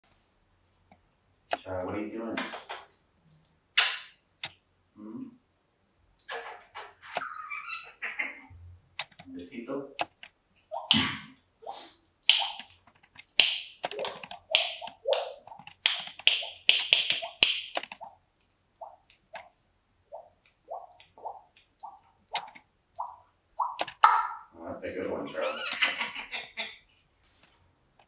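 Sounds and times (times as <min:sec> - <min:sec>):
parrot clicks and raspy calls: 0:12.2 - 0:19.6.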